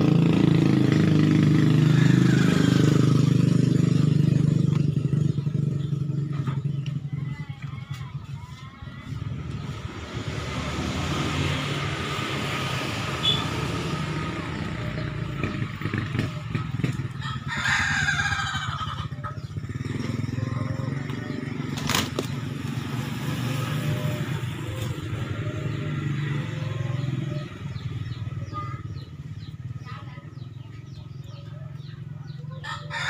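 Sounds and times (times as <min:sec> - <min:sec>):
rooster crowing: 0:01.6 - 0:03.5, 0:17.1 - 0:19.2, 0:32.6 - 0:33.0.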